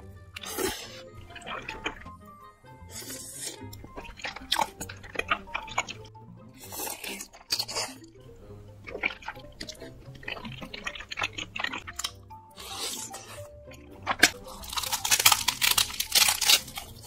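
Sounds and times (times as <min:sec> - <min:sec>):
background music: 0:00.0 - 0:17.0
slurping and chewing noodles: 0:00.0 - 0:17.0
crisp crunching of food: 0:00.4 - 0:02.2, 0:02.9 - 0:08.0, 0:08.8 - 0:17.0.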